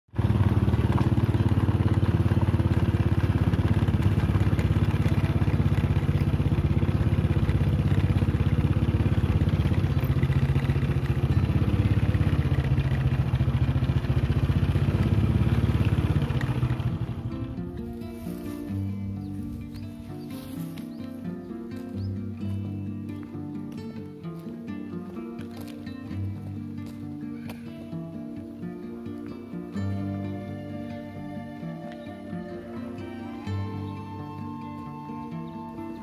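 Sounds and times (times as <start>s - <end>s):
small petrol engine running: 0.1s - 19.8s, 29.7s - 36.0s.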